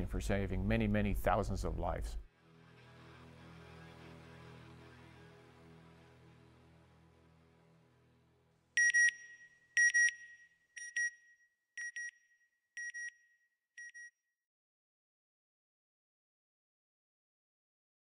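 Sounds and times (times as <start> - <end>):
background music: 2.0 - 8.8.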